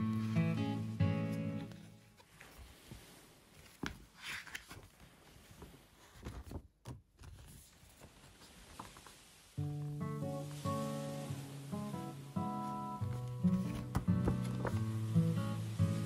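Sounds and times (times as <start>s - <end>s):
paper rustling and tapping: 1.6s - 9.2s, 12.6s - 15.1s.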